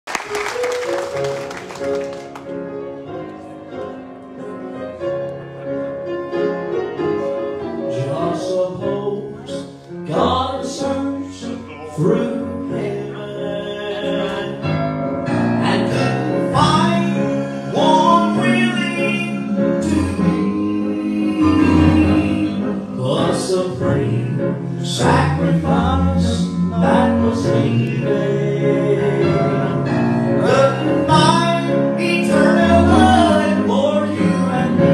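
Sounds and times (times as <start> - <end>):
piano accompaniment: 0.0 - 34.9
men singing gospel: 7.9 - 14.8, 15.6 - 34.9.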